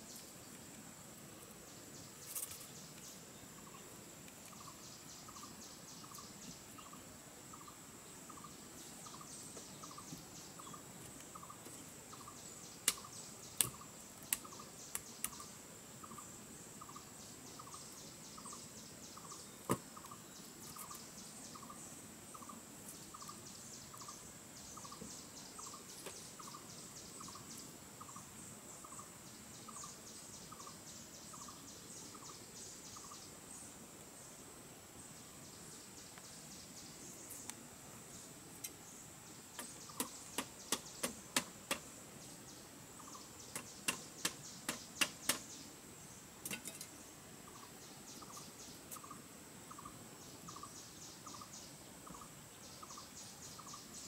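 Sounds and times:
insects buzzing and chirping: 0:00.0 - 0:54.0.

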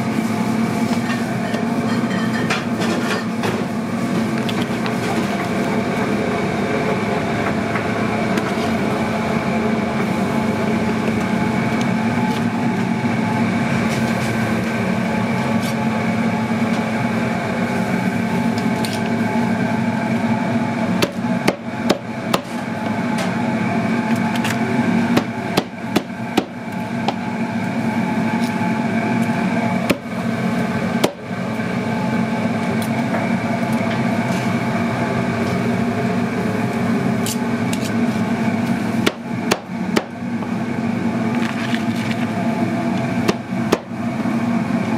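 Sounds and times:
kitchen machinery hum: 0:00.0 - 0:44.9
cleaver chopping on cutting board: 0:21.0 - 0:22.5.

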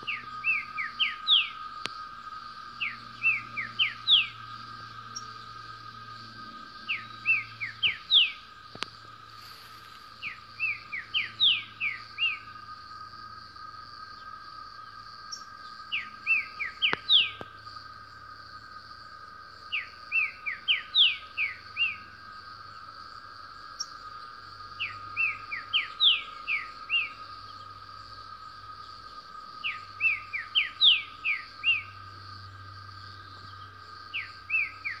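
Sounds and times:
bird singing whistled phrases: 0:06.9 - 0:08.4, 0:10.2 - 0:12.5, 0:15.9 - 0:17.4.

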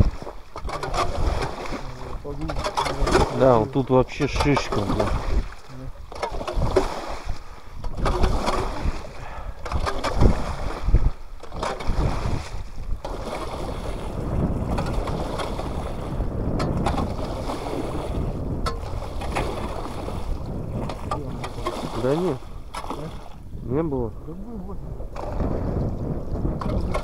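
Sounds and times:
landing net dipping in water: 0:00.0 - 0:18.0, 0:18.6 - 0:23.3
water sloshing and splashing: 0:00.0 - 0:27.0.

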